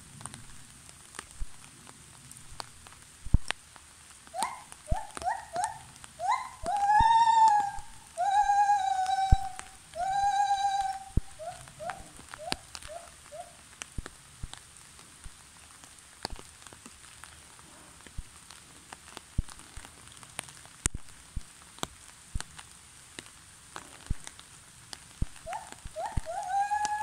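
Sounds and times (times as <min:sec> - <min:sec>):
rain drops ticking: 0:00.0 - 0:27.0
gibbon hooting: 0:04.4 - 0:13.6, 0:25.4 - 0:27.0.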